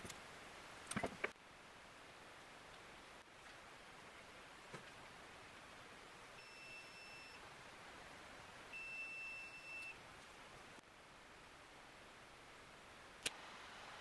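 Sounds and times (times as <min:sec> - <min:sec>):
multimeter continuity beeps: 0:06.4 - 0:07.4, 0:08.8 - 0:10.0.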